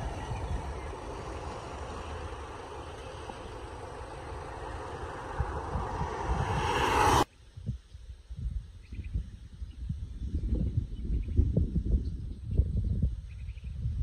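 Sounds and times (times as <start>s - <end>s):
passing vehicles rushing: 0.0s - 7.3s
uneven low rumble: 0.0s - 7.3s.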